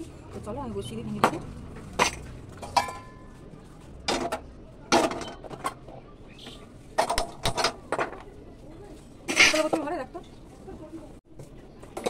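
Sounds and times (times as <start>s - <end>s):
pots and pans clanking: 2.0s - 3.3s.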